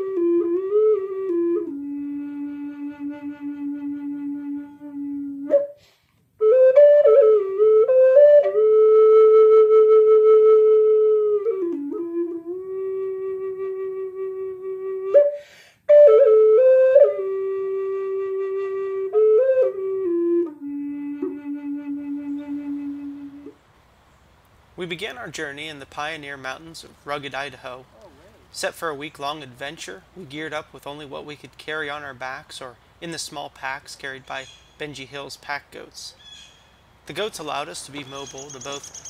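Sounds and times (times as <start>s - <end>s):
solo flute melody: 0.0s - 23.6s
person breathing: 5.8s - 6.2s, 15.3s - 15.9s.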